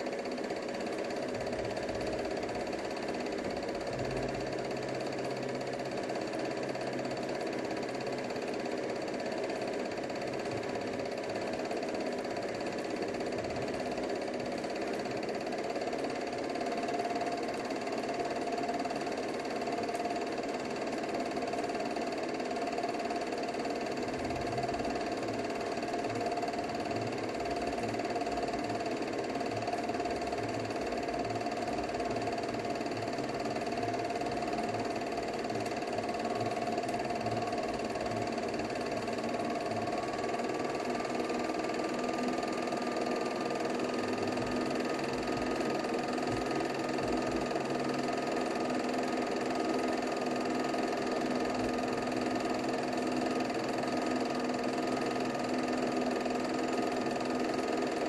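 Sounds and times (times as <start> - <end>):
film projector whirring: 0.0 - 58.0
low regular pulsing: 23.3 - 50.3.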